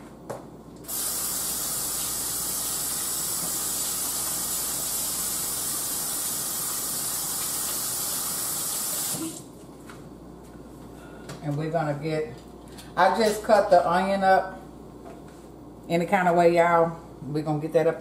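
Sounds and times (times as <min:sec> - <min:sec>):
faucet running: 0:00.8 - 0:09.5.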